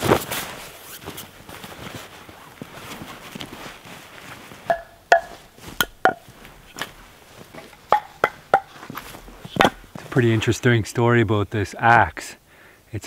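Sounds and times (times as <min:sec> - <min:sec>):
jacket fabric rustling: 0:00.0 - 0:10.5
wooden pieces knocking together: 0:07.6 - 0:08.8, 0:09.5 - 0:10.0.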